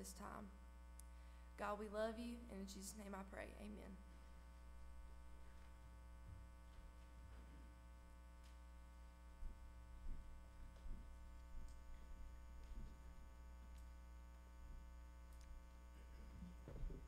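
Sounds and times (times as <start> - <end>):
electrical hum: 0.0 - 17.0
soft low thumps: 9.3 - 13.6, 16.1 - 17.0.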